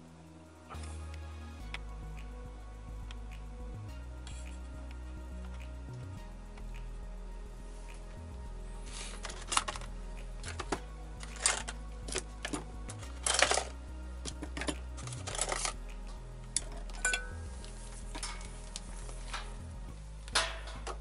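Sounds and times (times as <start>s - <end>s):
background music with bass line: 0.0s - 21.0s
rice cooker parts clattering: 20.4s - 21.0s.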